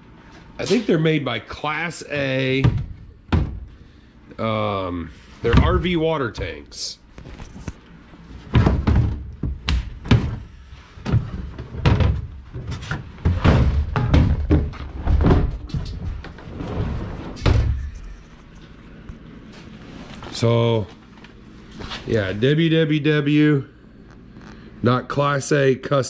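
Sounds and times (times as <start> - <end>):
hollow thumps on plastic tank: 2.6 - 3.8.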